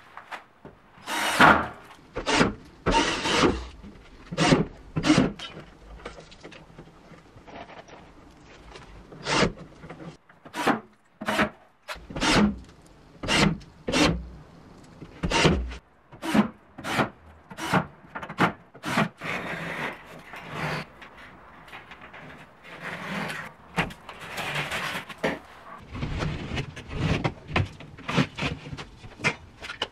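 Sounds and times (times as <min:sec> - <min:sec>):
drill driving screws: 0:01.0 - 0:01.6, 0:02.3 - 0:03.7
rough scraping and rubbing: 0:19.2 - 0:27.4.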